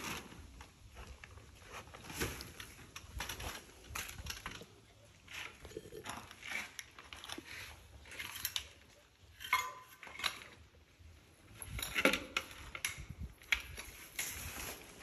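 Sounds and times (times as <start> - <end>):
tools clinking and knocking: 8.1 - 10.6, 11.5 - 13.9.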